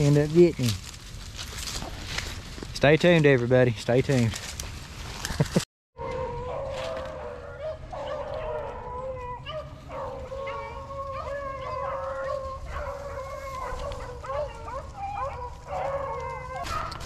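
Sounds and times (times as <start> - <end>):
dogs baying: 6.0 - 17.0.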